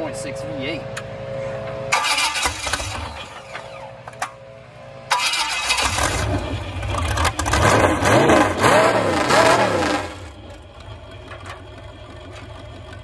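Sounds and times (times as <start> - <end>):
engine running and revving: 5.2 - 12.7.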